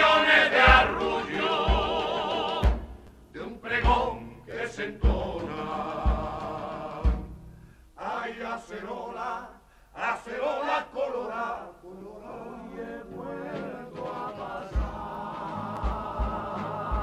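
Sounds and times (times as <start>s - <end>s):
men singing: 0.0s - 2.8s, 3.4s - 7.3s, 8.0s - 17.0s
band playing: 0.0s - 3.0s.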